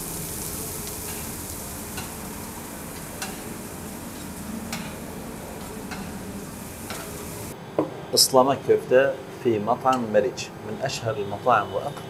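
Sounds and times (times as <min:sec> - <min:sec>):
food sizzling: 0:00.0 - 0:07.6.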